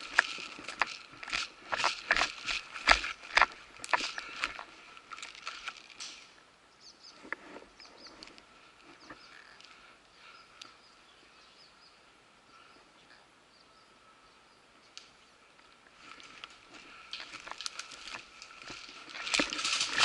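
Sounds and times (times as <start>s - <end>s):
footsteps on dry forest litter: 0.0s - 6.4s, 15.8s - 20.0s
small birds chirping: 0.0s - 20.0s.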